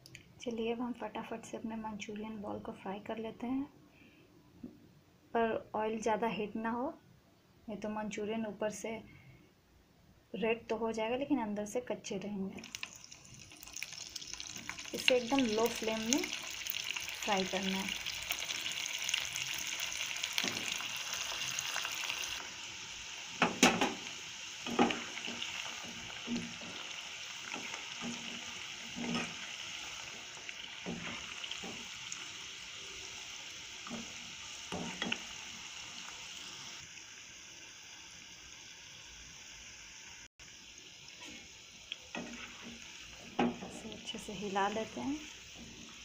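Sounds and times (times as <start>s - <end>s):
oil sizzling while deep-frying: 12.4s - 46.0s.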